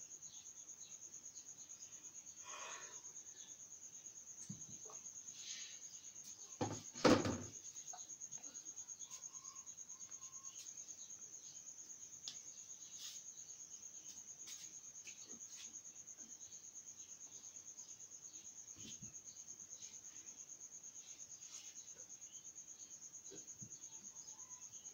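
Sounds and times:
high-pitched insect trill: 0.0 - 24.9
loud thump: 6.6 - 7.5.

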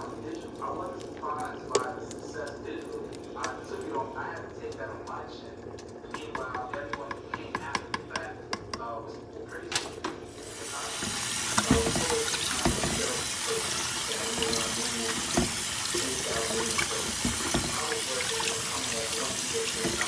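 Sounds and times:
rice rinsed by hand: 10.4 - 20.0
tap water running into pot: 10.4 - 20.0.

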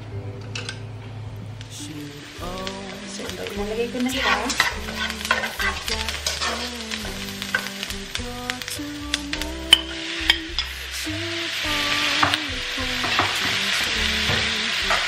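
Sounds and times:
onion sizzling in oil: 1.7 - 15.0
spatula scraping a pan: 4.0 - 6.9.

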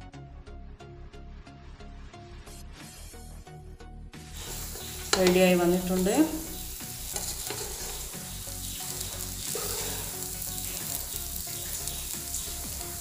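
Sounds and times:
pan sizzling: 4.2 - 13.0
spatula scraping rice in pan: 4.4 - 5.4, 6.6 - 12.5.

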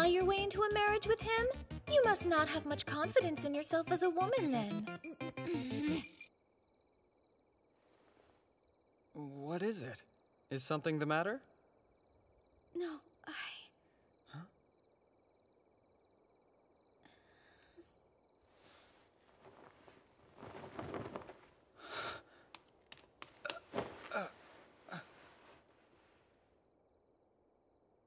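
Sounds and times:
faint insect chirring: 5.5 - 28.0
breathy sighs: 17.0 - 17.9
cloth rustling: 18.6 - 26.4.

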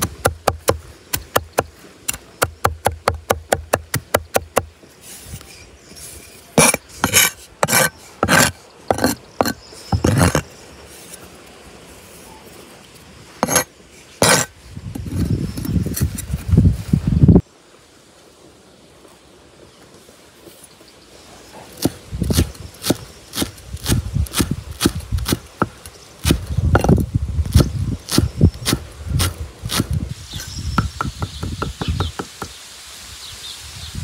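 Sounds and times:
cleaver chopping on wooden board: 0.0 - 4.7, 21.8 - 29.9, 30.8 - 32.5
blade scraping board: 5.0 - 11.2, 13.4 - 14.5.

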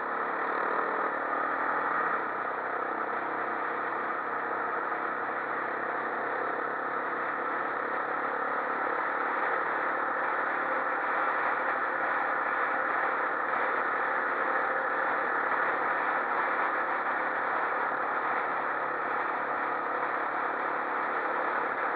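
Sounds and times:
quad bike engine running: 0.0 - 21.9.

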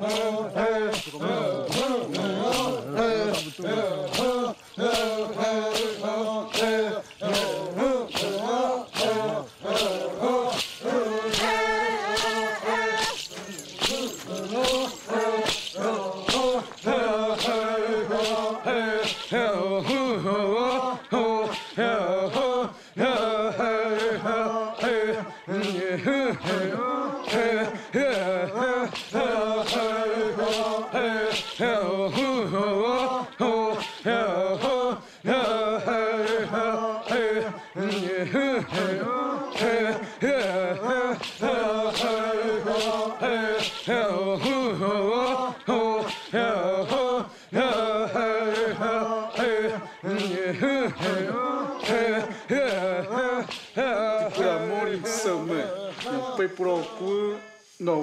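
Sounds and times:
steady regular beat: 0.0 - 22.7
group chanting in unison: 0.0 - 58.0.

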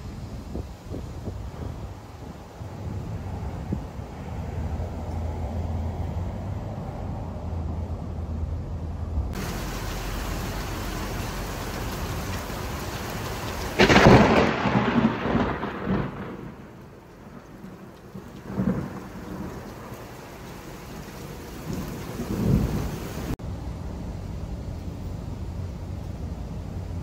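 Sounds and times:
heavy rain pouring: 9.3 - 23.4
thunder clap rumbling: 9.3 - 23.4.

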